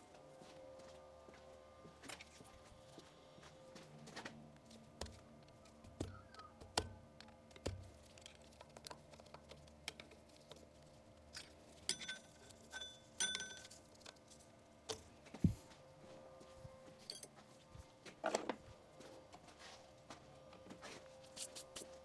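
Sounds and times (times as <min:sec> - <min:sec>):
metal parts clinking: 0:11.4 - 0:13.8.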